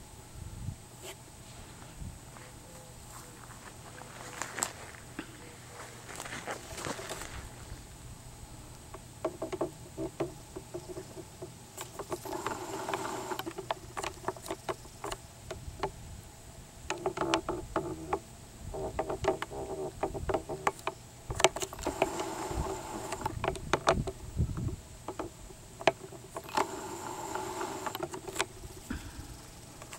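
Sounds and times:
footsteps crunching dry grass: 1.4s - 7.9s.

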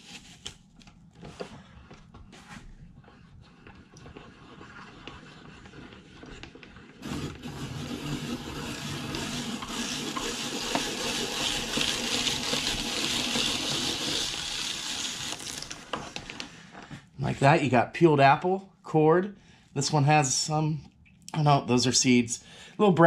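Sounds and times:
apple peeler scraping: 4.2s - 15.9s.

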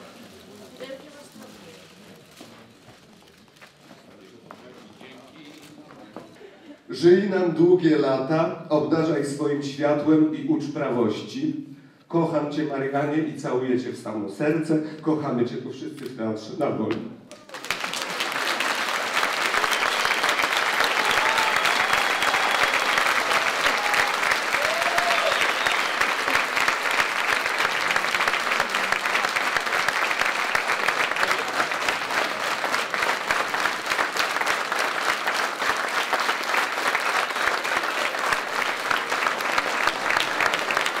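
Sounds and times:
audience applauding: 17.3s - 41.0s.

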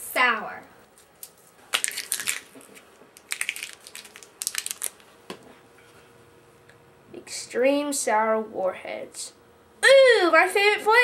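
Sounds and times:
plastic wrapper crinkling: 1.0s - 5.1s.

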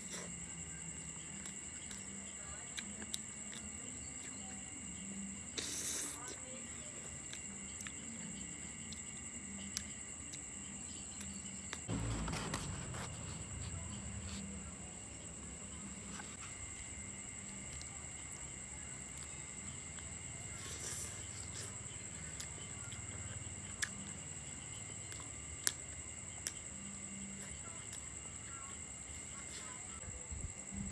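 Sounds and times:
faint chewing: 0.0s - 4.7s, 5.4s - 14.7s, 15.8s - 29.9s
insects chirring: 0.0s - 30.9s
loud bump: 11.9s - 13.8s.

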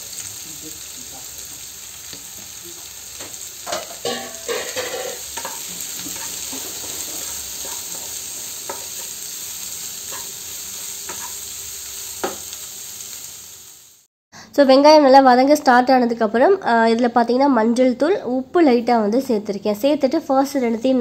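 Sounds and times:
vegetables sizzling in hot oil: 0.0s - 14.1s
spatula scraping and tapping pan: 3.2s - 9.2s, 10.1s - 10.4s, 11.0s - 11.4s, 12.2s - 12.5s.

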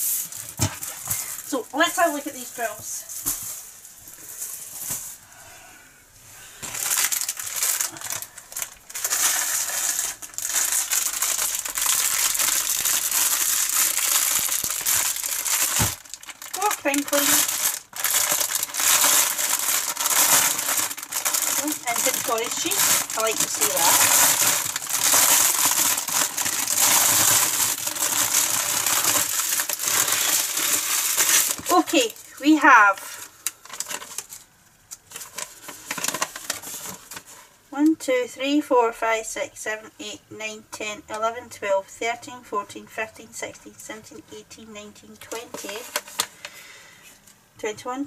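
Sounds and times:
plastic wrapping crinkling: 0.0s - 5.2s, 6.6s - 37.5s, 45.3s - 46.6s.

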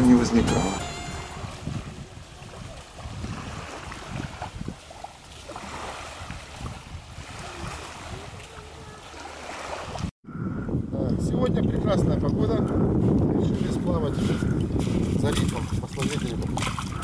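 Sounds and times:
wind buffeting microphone: 0.0s - 17.0s
small waves washing on shore: 0.8s - 10.1s, 13.4s - 17.0s.

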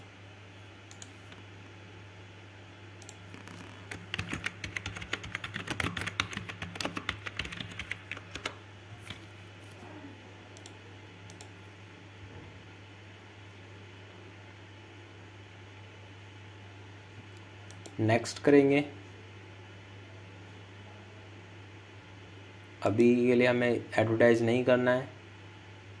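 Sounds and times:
typing on computer keyboard: 3.0s - 9.2s.

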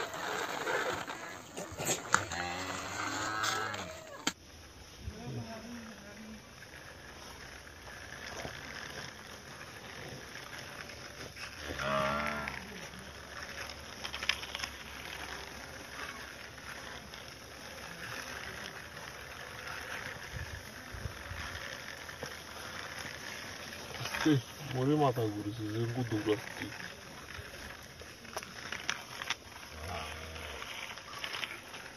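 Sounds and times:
cow mooing: 2.2s - 4.0s, 11.7s - 12.6s.

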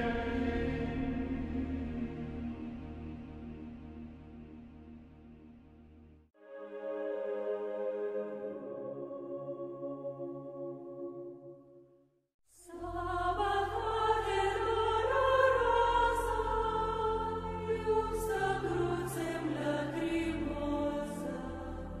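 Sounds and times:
choir singing slow lines: 0.0s - 4.8s, 6.4s - 11.8s, 12.5s - 22.0s
soft ambient music: 0.0s - 5.4s, 6.4s - 11.9s, 12.7s - 22.0s.

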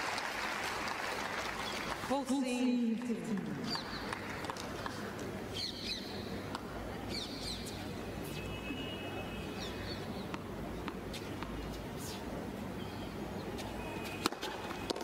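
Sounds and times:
shoes squeaking on court: 9.6s - 15.0s
tennis ball strikes: 10.2s - 12.2s, 14.2s - 15.0s.

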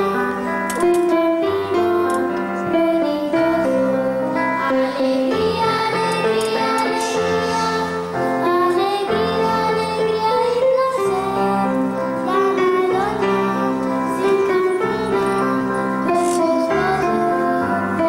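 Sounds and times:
children's choir singing: 0.0s - 18.0s.

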